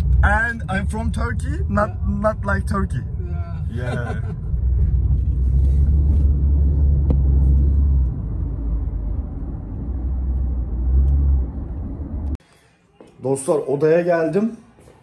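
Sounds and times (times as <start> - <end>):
car cabin road rumble: 0.0 - 12.4.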